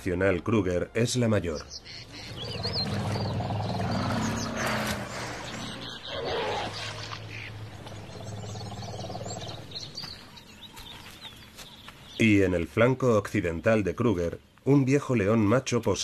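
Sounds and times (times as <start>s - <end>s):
birds chirping: 0.0s - 16.0s
lion roaring: 2.3s - 7.0s.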